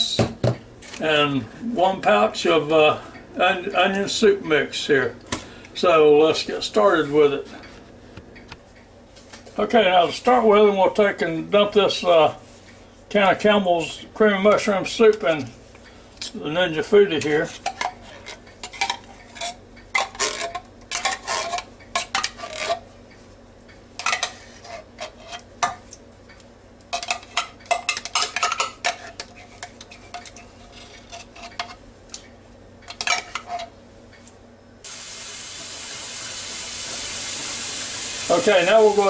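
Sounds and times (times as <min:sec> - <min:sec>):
steady hiss: 0:34.8 - 0:39.0.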